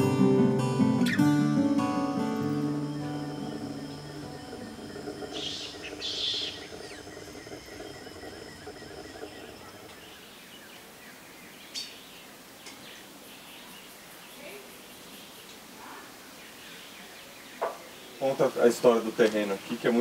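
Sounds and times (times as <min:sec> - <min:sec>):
high-pitched insect trilling: 0:02.2 - 0:10.4
bird calls: 0:02.2 - 0:20.0.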